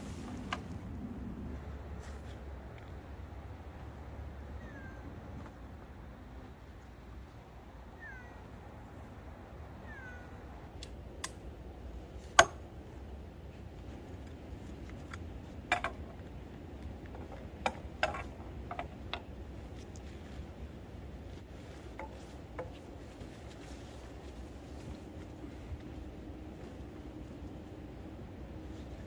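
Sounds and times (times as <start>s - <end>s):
high cat-like calls: 7.9s - 8.6s, 9.7s - 10.6s.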